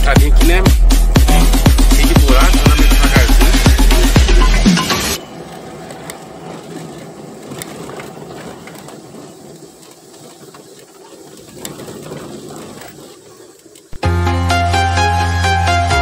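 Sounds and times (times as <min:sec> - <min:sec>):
car body rattling: 0:00.0 - 0:14.0
car engine running: 0:00.0 - 0:14.1.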